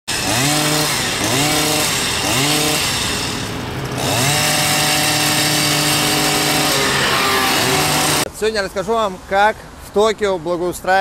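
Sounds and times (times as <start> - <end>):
small two-stroke engine revving: 0.1 - 8.3.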